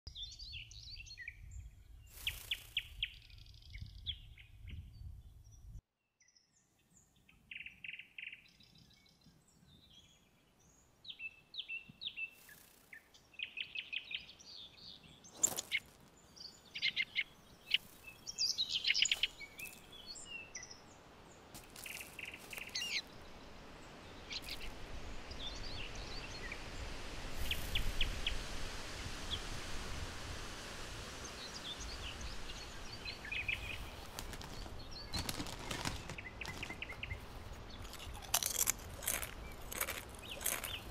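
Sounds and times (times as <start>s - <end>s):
birds chirping and trilling: 0.1s - 28.4s, 31.2s - 40.9s
steady background hiss: 10.6s - 37.8s.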